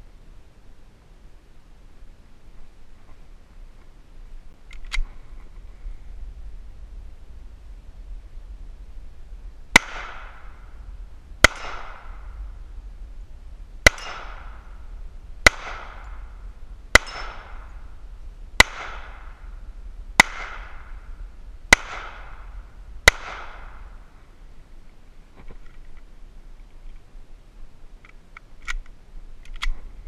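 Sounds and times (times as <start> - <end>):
pistol shots: 9.8 - 10.6, 11.4 - 12.4, 13.8 - 14.7, 15.4 - 16.3, 16.9 - 17.7, 18.6 - 19.4, 20.2 - 20.9, 21.7 - 23.9.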